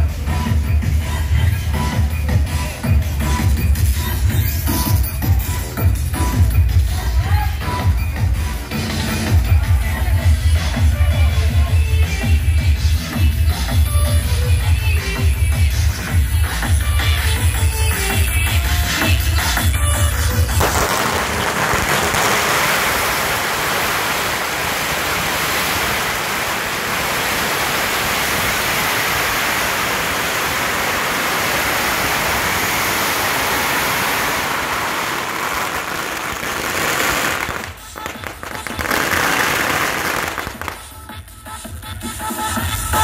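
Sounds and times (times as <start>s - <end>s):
firecrackers crackling: 8.6s - 41.3s.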